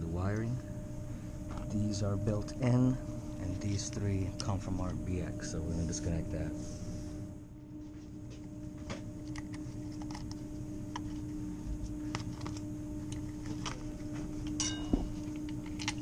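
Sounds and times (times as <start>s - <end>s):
low mechanical hum: 0.0s - 16.0s.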